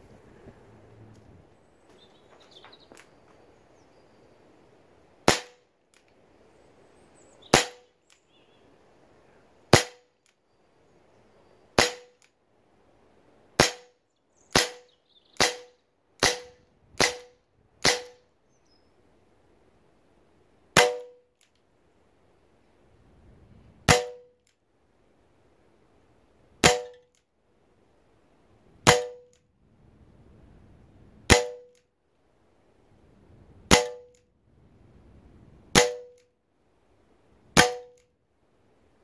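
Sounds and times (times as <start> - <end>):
air pistol shots: 5.2 - 5.6, 7.5 - 8.0, 9.7 - 10.2, 11.8 - 12.3, 13.6 - 18.2, 20.8 - 21.2, 23.9 - 24.5, 26.6 - 27.2, 28.8 - 29.4, 31.3 - 31.8, 33.7 - 34.2, 35.7 - 36.3, 37.6 - 38.1.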